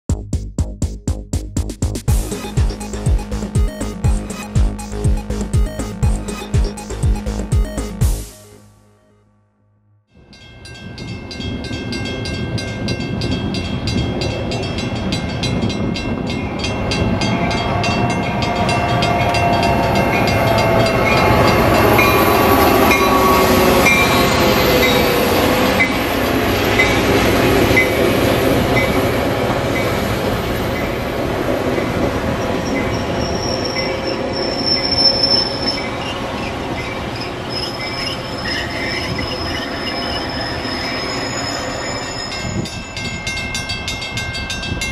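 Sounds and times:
fast even ticking: 0.1 - 8.3
train wheels rumbling on rails: 10.6 - 44.9
wheels squealing: 17.0 - 43.4.

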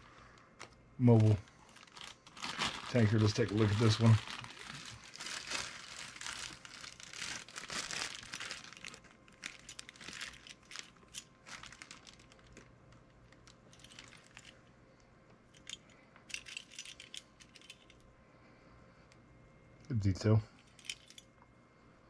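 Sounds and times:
plastic bag crinkling: 0.0 - 14.6.

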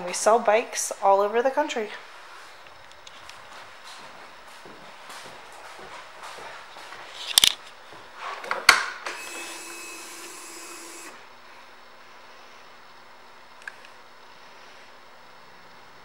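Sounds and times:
fuel pump electric whine: 8.4 - 15.0.

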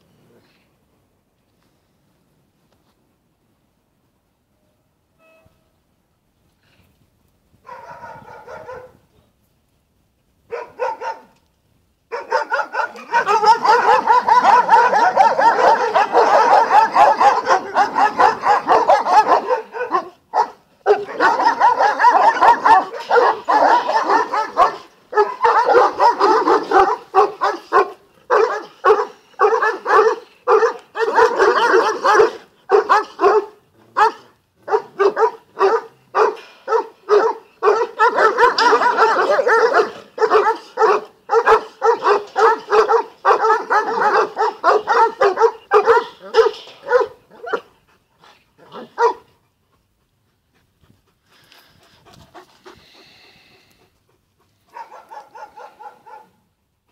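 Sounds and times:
dogs barking: 7.7 - 9.0, 10.5 - 11.3, 12.1 - 47.7, 48.6 - 49.3, 54.6 - 56.4.

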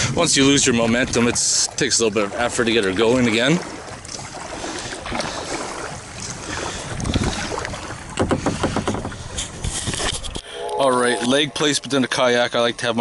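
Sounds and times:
wind noise on microphone: 0.0 - 1.5, 4.0 - 11.5
paddle splashing in water: 0.0 - 12.7.

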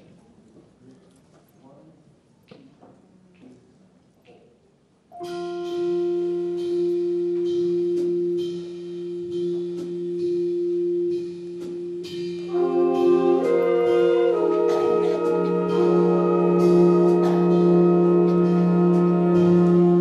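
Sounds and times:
big band ballad: 5.2 - 20.0.

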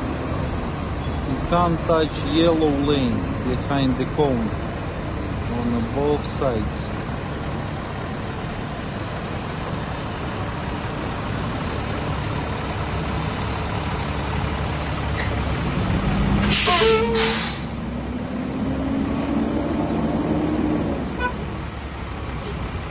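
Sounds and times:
truck engine running: 0.0 - 22.9
air brakes hissing: 16.4 - 17.8, 19.1 - 19.5, 22.4 - 22.8.

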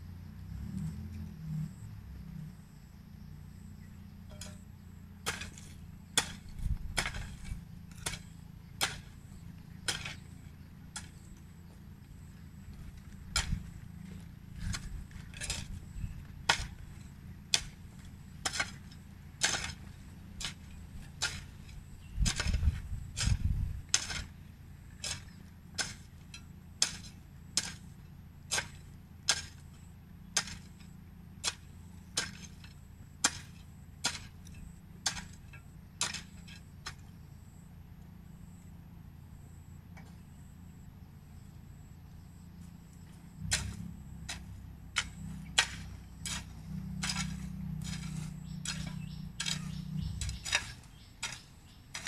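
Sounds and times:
hoe chopping into soil: 5.2 - 9.2, 9.8 - 11.3, 12.8 - 29.7, 30.3 - 37.2, 43.0 - 52.0.

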